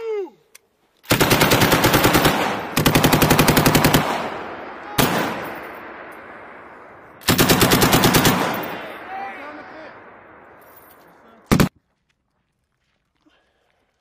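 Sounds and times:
machine gun firing bursts: 1.1 - 5.6, 7.2 - 8.9, 11.5 - 11.7
gunshot echoing: 1.9 - 11.7.

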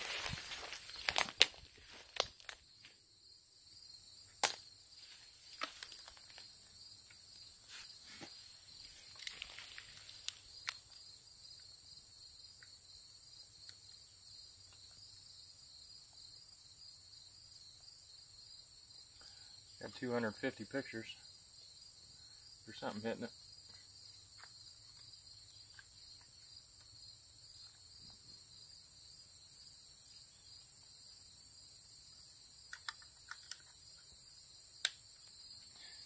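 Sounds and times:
footsteps through brush: 0.0 - 3.0, 5.0 - 6.5, 7.6 - 10.9
insects chirring: 0.0 - 36.0.

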